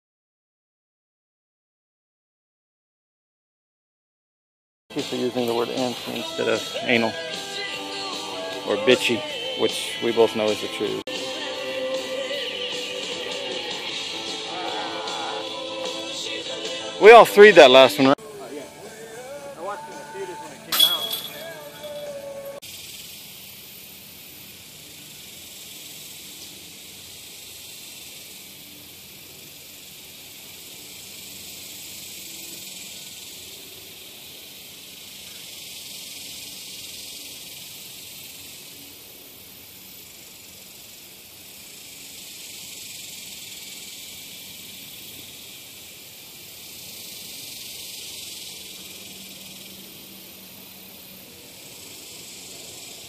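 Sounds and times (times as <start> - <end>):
high-pitched outdoor hiss: 4.9 - 53.0.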